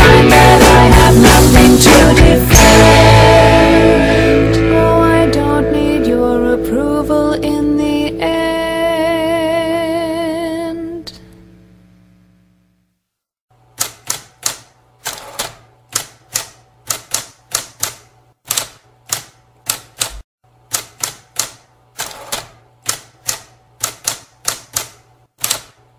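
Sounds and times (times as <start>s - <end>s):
song ending: 0.0s - 10.2s
typewriter keys striking: 13.8s - 25.8s.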